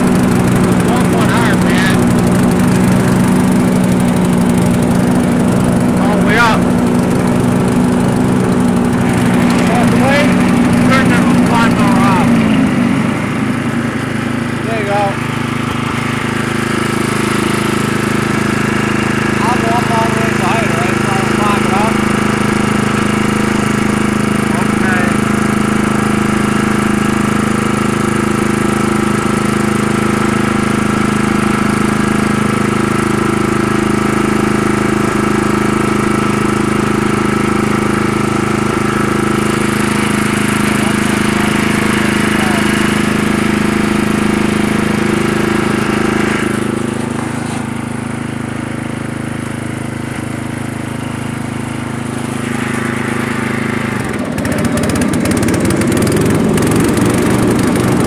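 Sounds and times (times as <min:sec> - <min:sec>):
riding mower engine running: 0:00.0 - 0:58.0.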